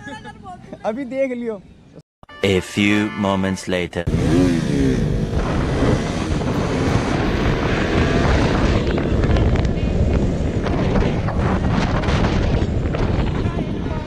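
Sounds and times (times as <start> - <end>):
motorcycle engine: 4.0 - 13.2
wind buffeting microphone: 4.2 - 14.0.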